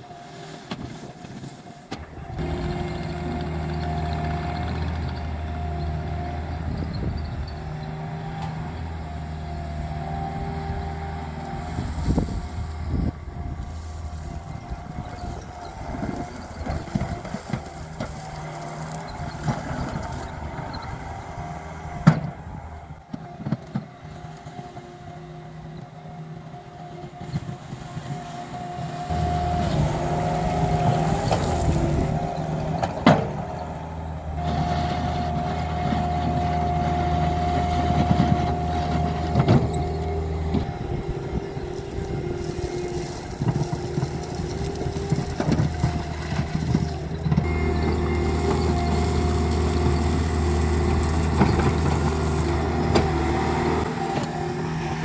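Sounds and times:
diesel engine running: 0:00.0 - 0:55.0
bucket clanking and scraping gravel: 0:11.7 - 0:20.5, 0:38.1 - 0:55.0.

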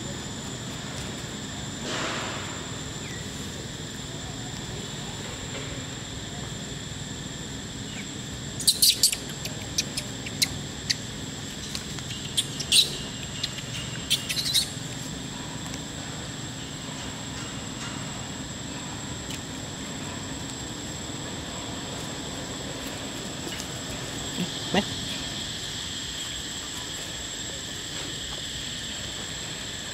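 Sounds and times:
baby monkey squeaking: 0:08.6 - 0:11.0, 0:12.2 - 0:14.8.

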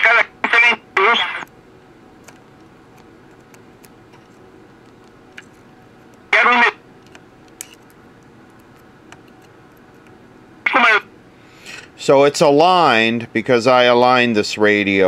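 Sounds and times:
burst of voice from radio: 0:00.0 - 0:01.4, 0:06.4 - 0:06.8, 0:10.7 - 0:11.1
radio speaker hiss: 0:00.0 - 0:01.5, 0:06.4 - 0:06.8, 0:10.7 - 0:11.0.

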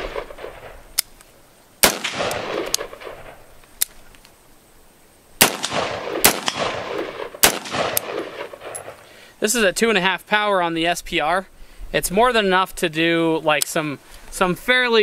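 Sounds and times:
rifle shots with rolling echo: 0:00.0 - 0:01.0, 0:01.8 - 0:03.6, 0:05.4 - 0:09.1
faint sharp cracks: 0:00.0 - 0:04.4, 0:05.4 - 0:09.1.

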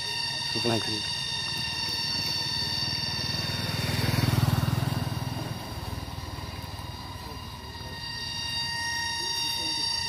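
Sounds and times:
vehicle engine passing: 0:01.7 - 0:08.2.

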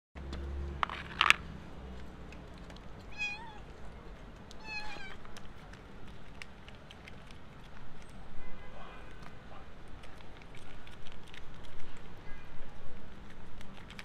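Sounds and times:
cat meowing: 0:03.1 - 0:03.7, 0:04.6 - 0:05.2.

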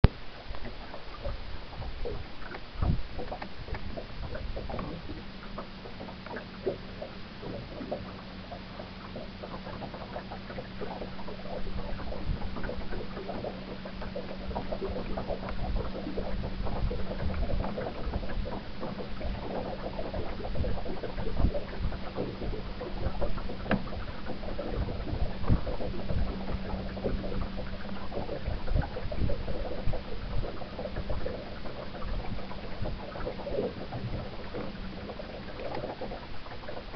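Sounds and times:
water slapping against hull: 0:00.0 - 0:36.9.

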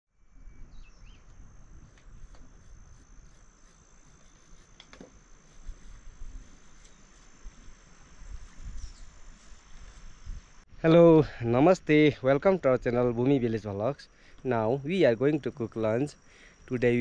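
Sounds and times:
faint bird chirps: 0:00.2 - 0:01.5, 0:08.6 - 0:10.4
insects trilling: 0:00.2 - 0:17.0.

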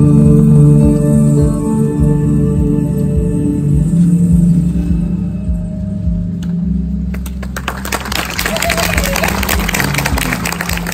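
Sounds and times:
sustained low notes: 0:00.0 - 0:07.6.

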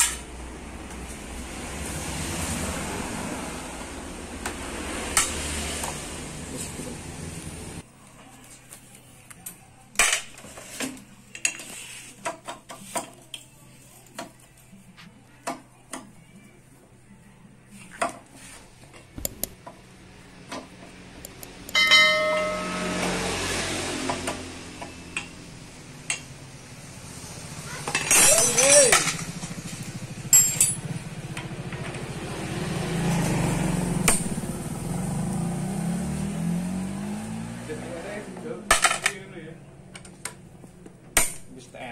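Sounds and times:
metal tools clinking on metal: 0:27.8 - 0:29.3, 0:30.3 - 0:30.9
motorcycle engine idling: 0:28.9 - 0:33.2.

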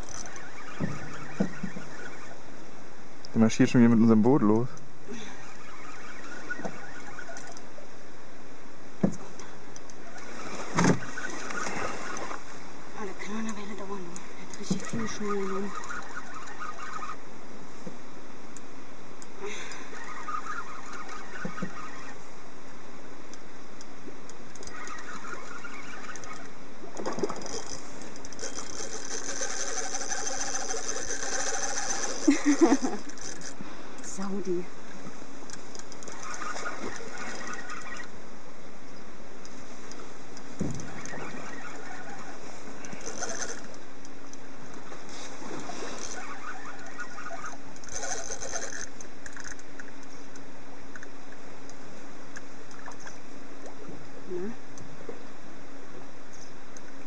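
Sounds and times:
fishing reel whirring: 0:00.0 - 0:02.6, 0:03.4 - 0:07.8, 0:09.4 - 0:17.3, 0:19.2 - 0:22.3, 0:24.3 - 0:34.6, 0:35.4 - 0:38.2, 0:39.8 - 0:51.1
low hum: 0:00.0 - 0:57.0.

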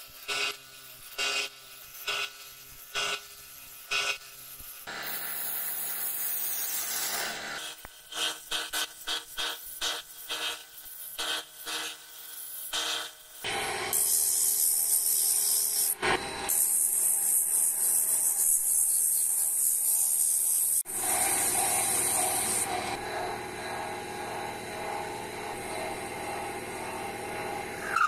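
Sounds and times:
sandpaper hissing on spinning wood: 0:00.0 - 0:23.0.

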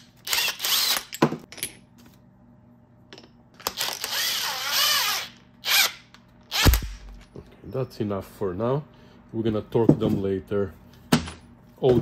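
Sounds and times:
impact wrench motor whirring: 0:00.0 - 0:01.2, 0:03.6 - 0:07.2.

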